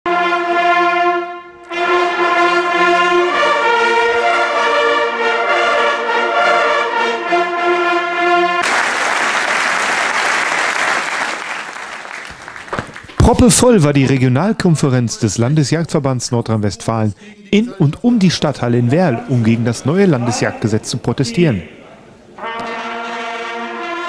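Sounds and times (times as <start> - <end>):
brass hunting horns playing: 0.1 - 8.8, 22.4 - 24.0
crowd applauding: 8.6 - 13.4.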